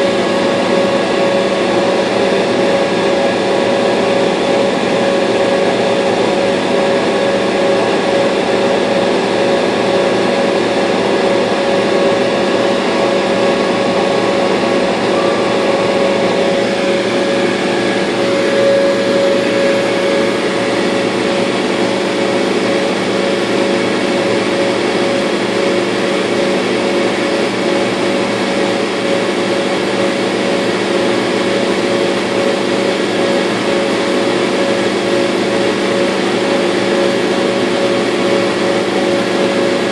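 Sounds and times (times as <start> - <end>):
laser cutter humming: 0.0 - 39.9
whining tones: 10.0 - 25.0.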